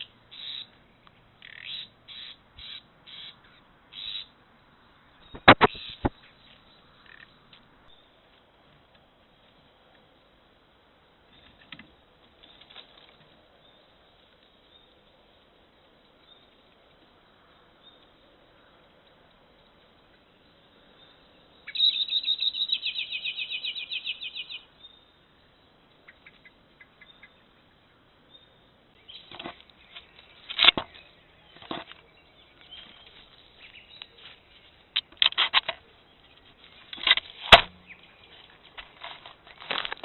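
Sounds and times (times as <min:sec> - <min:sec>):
rustling in dry twigs: 0:05.2 - 0:25.2, 0:28.9 - 0:40.0
sharp click: 0:05.4 - 0:06.2
scrapes and knocks on camera: 0:29.3 - 0:31.0, 0:31.6 - 0:32.0.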